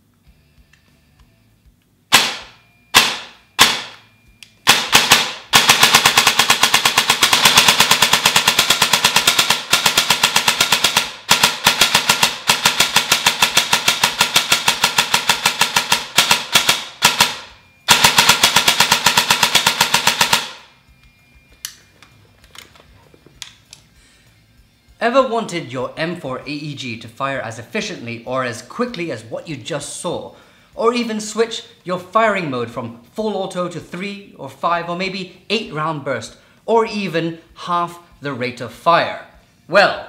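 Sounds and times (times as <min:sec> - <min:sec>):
airsoft gun firing: 0:02.1 - 0:04.0, 0:04.7 - 0:20.7.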